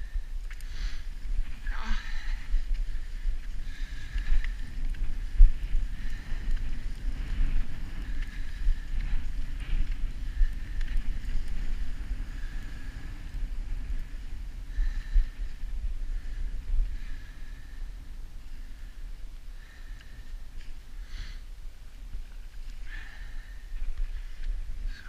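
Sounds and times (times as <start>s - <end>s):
wind buffeting microphone: 0.0s - 25.0s
skis gliding on snow: 0.5s - 17.7s.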